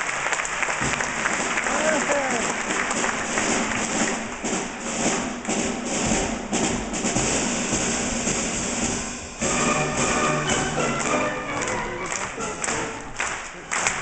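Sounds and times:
audience clapping: 0:00.0 - 0:06.0, 0:09.4 - 0:14.0
orchestra playing: 0:00.0 - 0:14.0.

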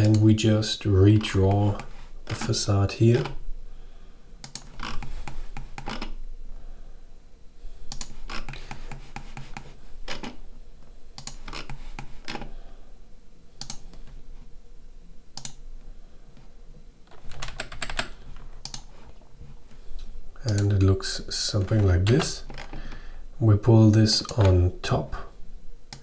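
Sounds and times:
keyboard and mouse clicking: 0:00.0 - 0:00.3, 0:04.4 - 0:06.1, 0:07.9 - 0:10.4, 0:11.2 - 0:12.4, 0:13.6 - 0:14.1, 0:15.4 - 0:15.6, 0:17.1 - 0:18.9, 0:20.4 - 0:20.7, 0:24.2 - 0:24.6
low steady hum: 0:00.0 - 0:26.0.

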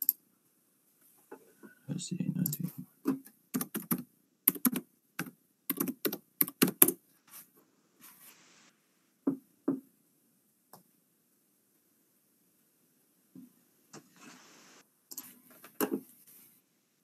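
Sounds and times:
computer keyboard typing: 0:03.5 - 0:07.0.

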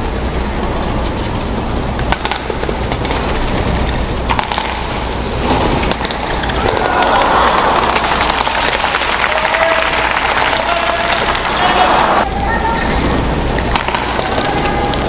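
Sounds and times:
racket striking shuttlecock: 0:02.0 - 0:03.3, 0:04.2 - 0:08.4, 0:13.7 - 0:14.4
arena crowd noise: 0:05.9 - 0:15.0.

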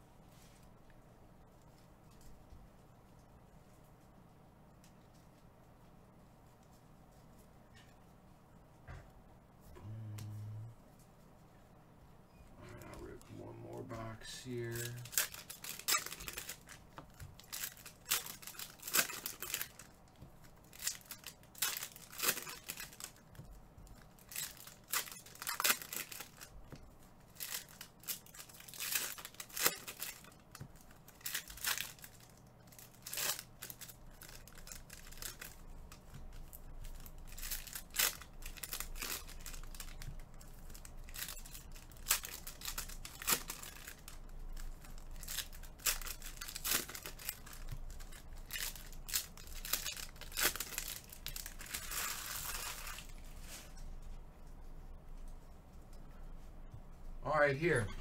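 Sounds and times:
plastic packaging crinkling and tearing: 0:12.8 - 0:53.8.

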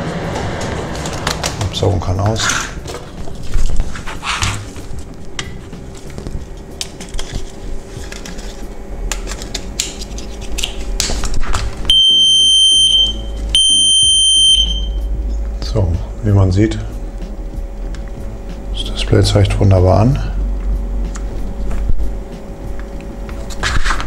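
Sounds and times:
high warning buzzer beeps: 0:11.9 - 0:15.1.

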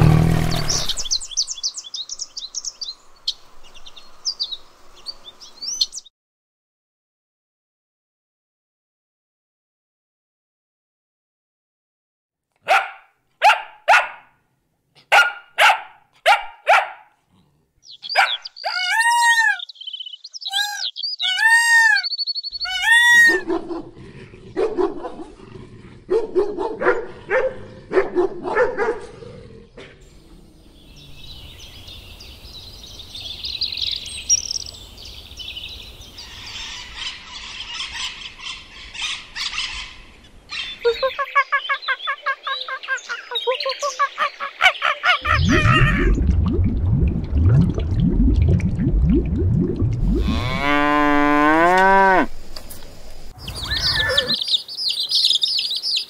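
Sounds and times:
chirps rising and falling: 0:00.2 - 0:06.1, 0:17.8 - 0:23.4, 0:30.2 - 0:38.1, 0:40.5 - 0:52.2, 0:53.3 - 0:56.0
small dog barking: 0:12.6 - 0:14.3, 0:15.0 - 0:17.2, 0:18.1 - 0:18.8, 0:24.6 - 0:25.3, 0:26.1 - 0:29.1
pitched squawking calls: 0:17.9 - 0:23.4, 0:53.4 - 0:56.0
low animal calls: 0:45.2 - 0:46.4, 0:50.0 - 0:52.4, 0:53.5 - 0:54.4.

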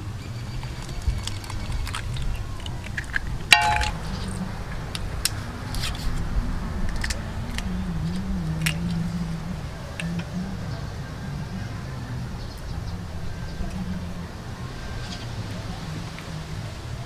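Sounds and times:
sharp ringing clink: 0:03.6 - 0:04.0.

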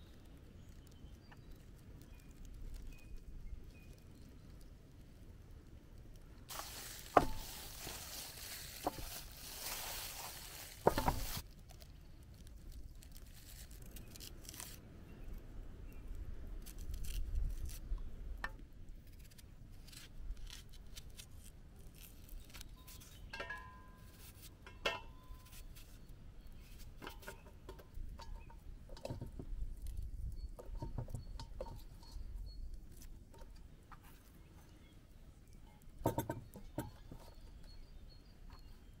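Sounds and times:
onion skin crackling and tearing: 0:06.5 - 0:14.8, 0:16.4 - 0:18.0, 0:19.0 - 0:23.2.

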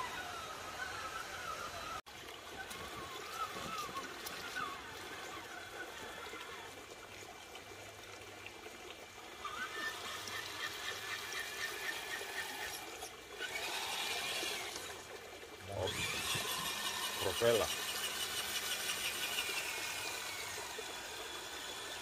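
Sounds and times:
electric motor whine: 0:00.0 - 0:02.0, 0:09.4 - 0:15.0, 0:15.6 - 0:22.0
water splashing and trickling: 0:00.0 - 0:22.0.

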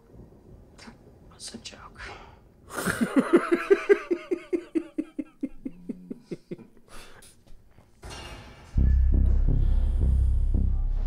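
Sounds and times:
man laughing: 0:02.7 - 0:06.9.

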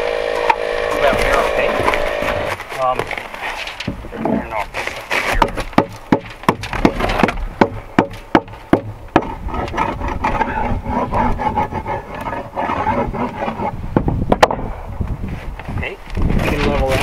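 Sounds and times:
rubbing and scraping: 0:00.4 - 0:17.0
hammer driving nails into wood: 0:05.1 - 0:10.5.

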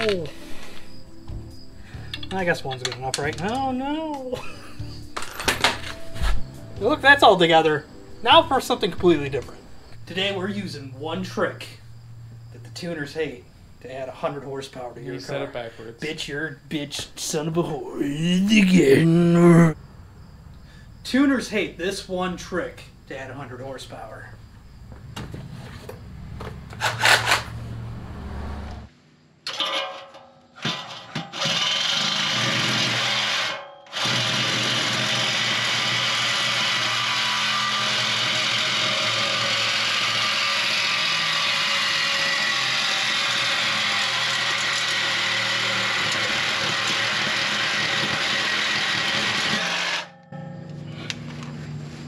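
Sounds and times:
reciprocating saw cutting metal: 0:26.8 - 0:27.6, 0:29.5 - 0:50.2.

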